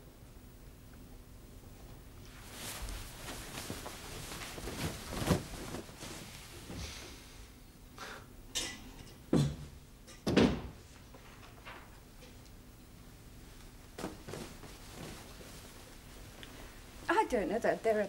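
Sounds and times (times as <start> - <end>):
closet doors opening and shutting: 9.3 - 12.0.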